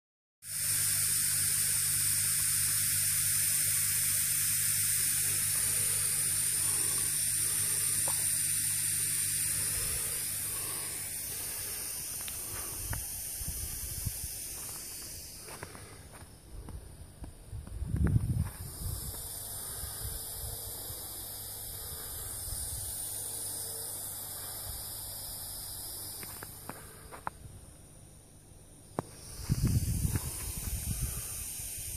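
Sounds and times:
air hissing through valves: 0.4s - 31.9s
low steady hum: 0.6s - 31.9s.

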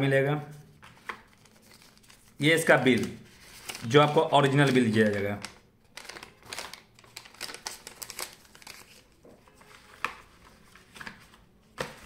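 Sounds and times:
paper rustling and crinkling: 0.7s - 12.0s.

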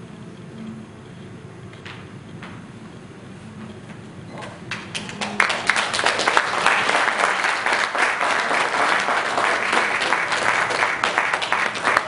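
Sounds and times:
audience applause: 4.7s - 12.0s.

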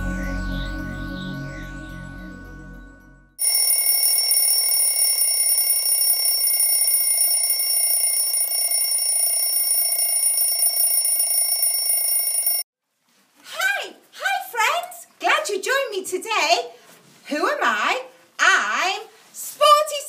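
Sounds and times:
intro music: 0.0s - 3.3s
alarm clock bell ringing: 3.4s - 12.7s.

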